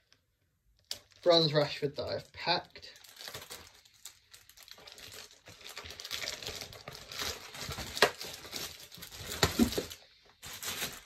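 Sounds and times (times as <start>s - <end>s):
foil wrappers crinkling: 2.4s - 11.0s.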